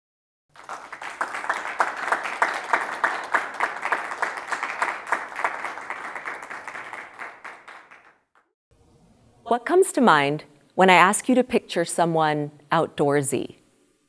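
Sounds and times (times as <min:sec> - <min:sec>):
audience applauding: 0:00.5 - 0:08.5.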